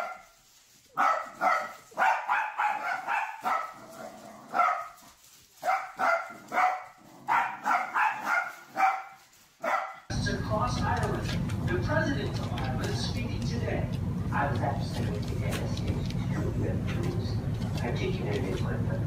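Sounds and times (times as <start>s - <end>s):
small dogs barking: 0.0s - 10.2s, 13.9s - 17.9s.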